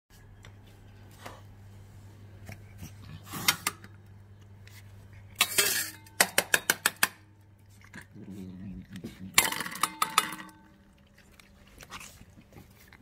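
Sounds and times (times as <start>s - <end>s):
tin clinking against metal bowls: 9.4s - 10.7s.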